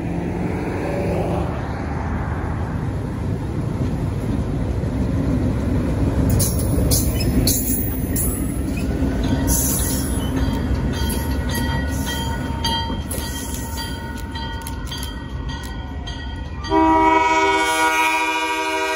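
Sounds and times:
diesel locomotive rumbling past: 0.0s - 18.9s
wheels on rails: 2.5s - 16.7s
locomotive horn chord: 16.7s - 18.9s.

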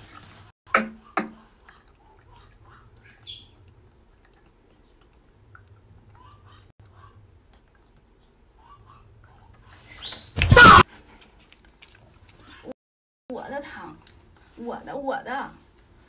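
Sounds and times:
young monkeys chirping: 3.0s - 3.6s.

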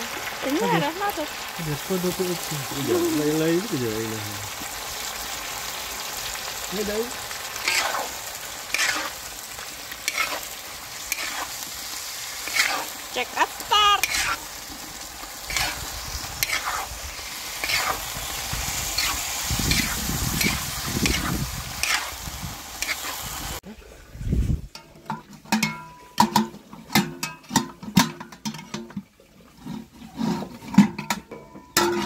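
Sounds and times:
chicken sizzling in a wok: 0.0s - 24.6s
metal spatula scraping wok: 4.0s - 23.6s, 29.5s - 32.0s.

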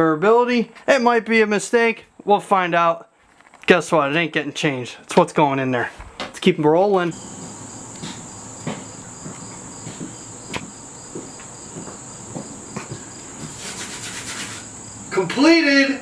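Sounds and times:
crickets trilling: 7.1s - 16.0s.

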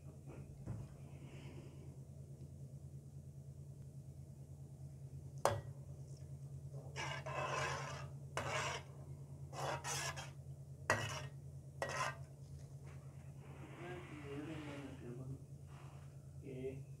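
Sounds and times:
steady low hum: 0.0s - 17.0s
metal spoon scraping a pan: 6.8s - 8.9s, 9.5s - 12.3s.

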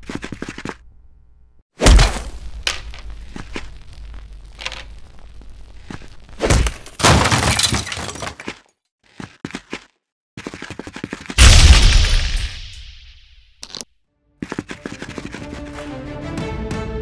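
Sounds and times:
shattering crash: 6.5s - 8.4s, 11.4s - 13.2s
quick run of ticks: 14.4s - 15.9s.

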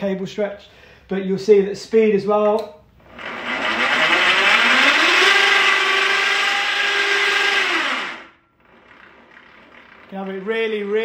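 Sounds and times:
winch motor whining: 3.0s - 11.0s.

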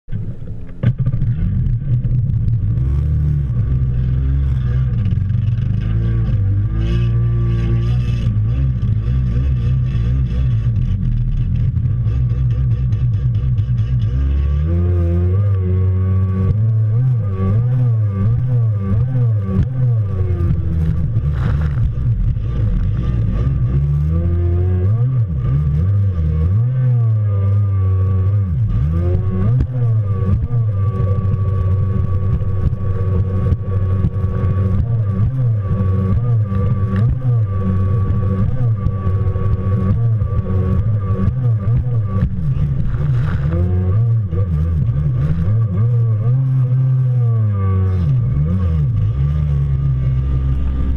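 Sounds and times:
jet ski engine revving: 0.3s - 50.9s
steady high whine: 15.2s - 25.5s, 27.2s - 50.9s.

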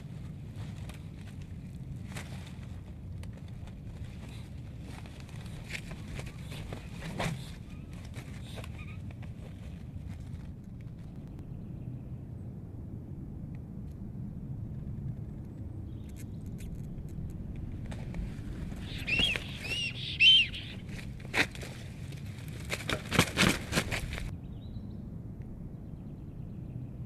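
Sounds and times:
wing flaps: 0.0s - 11.2s, 17.6s - 24.3s
steady low rumble: 0.0s - 22.9s, 23.6s - 27.0s
sharp knocks on stick nest: 22.6s - 24.3s.

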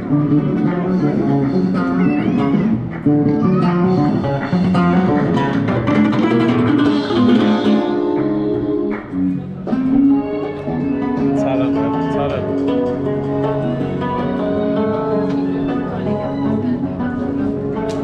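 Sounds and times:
bass line: 0.0s - 18.0s
plucked guitar music: 0.0s - 18.0s.

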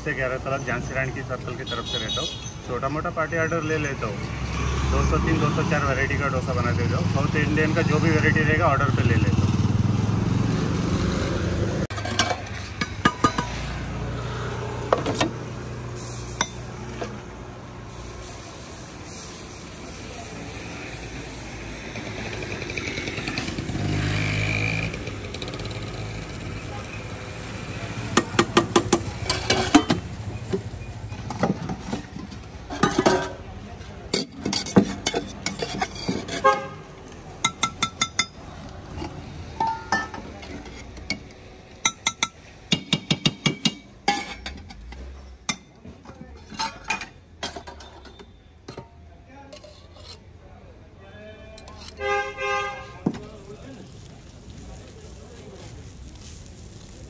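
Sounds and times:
street traffic rumble: 0.0s - 57.0s
steel utensils clinking: 32.7s - 33.5s, 39.0s - 41.2s
vehicle horn: 36.4s - 36.8s, 52.0s - 53.0s.

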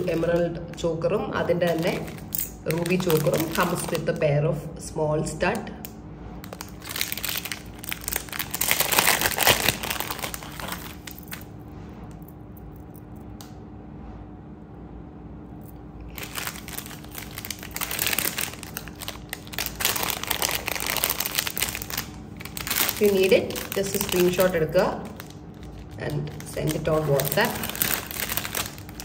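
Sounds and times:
plastic pouches crinkling: 0.0s - 4.2s, 6.4s - 11.5s, 16.1s - 29.0s
faint steady hum: 0.0s - 29.0s.

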